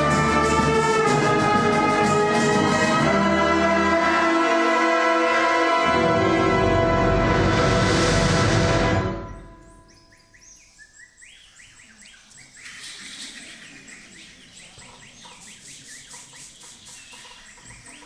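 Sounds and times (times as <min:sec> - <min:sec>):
birds chirping and whistling: 0:09.2 - 0:18.0.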